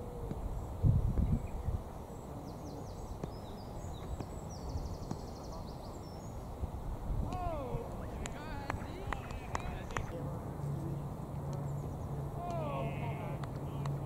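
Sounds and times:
small birds singing: 0.0s - 10.2s, 10.8s - 14.0s
wind rumble on microphone: 0.0s - 10.4s.

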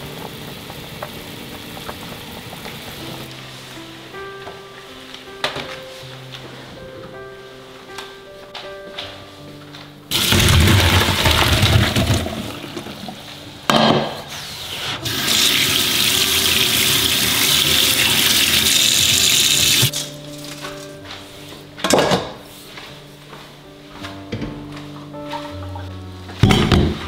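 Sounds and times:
water pouring and splashing: 0.0s - 3.4s, 10.1s - 13.4s, 15.0s - 20.6s
kitchen tap running: 10.1s - 13.2s, 15.0s - 20.0s.

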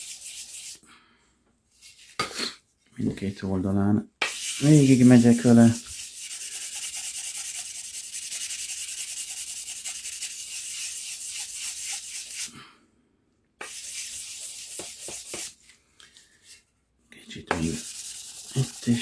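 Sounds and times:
sandpaper rubbing on steel: 0.0s - 0.8s, 4.2s - 12.5s, 13.6s - 15.5s, 17.5s - 19.0s.

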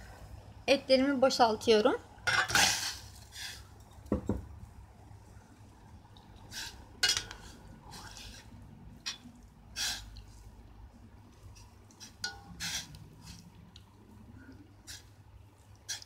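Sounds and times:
metal spoon scraping a pot: 6.5s - 9.2s, 11.9s - 13.5s.

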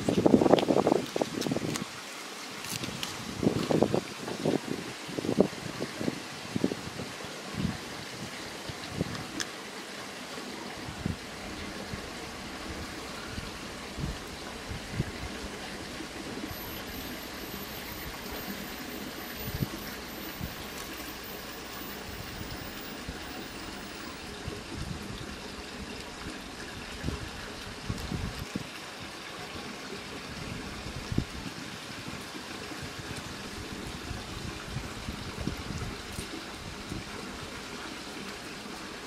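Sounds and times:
steady rushing noise: 12.4s - 24.2s.

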